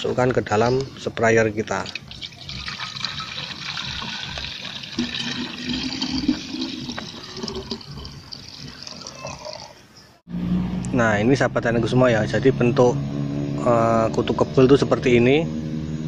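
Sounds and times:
liquid pouring into bottle: 1.8s - 9.7s.

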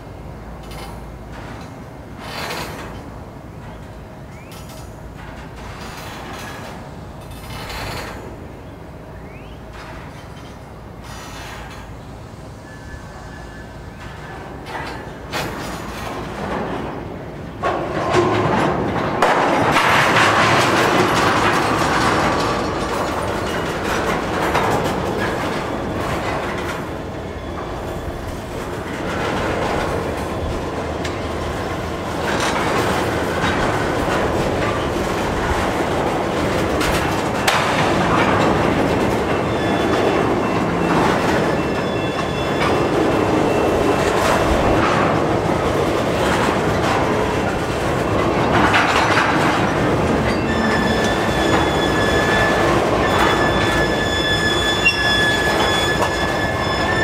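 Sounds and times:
train wheels rumbling on rail: 0.0s - 57.0s
wheels clicking over rail joints: 0.6s - 8.4s, 13.9s - 57.0s
faint high wheel squeal: 9.2s - 16.1s, 23.0s - 29.3s, 39.3s - 44.2s, 50.2s - 57.0s.

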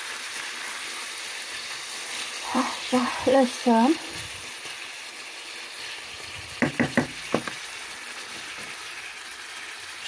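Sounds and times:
food sizzling in a frying pan: 0.0s - 10.0s
knocks: 6.6s - 7.6s.

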